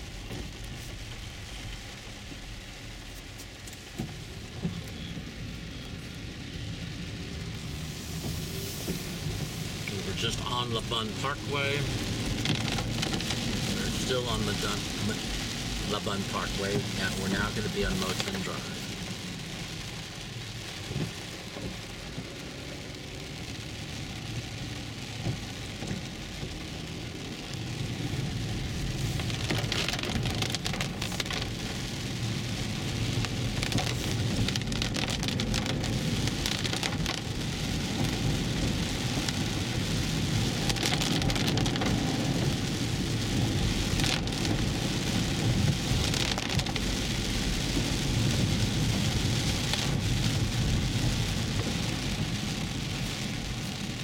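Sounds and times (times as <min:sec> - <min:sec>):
rain on car roof: 0:00.0 - 0:54.0
tyres rumbling on wet road: 0:00.0 - 0:54.0.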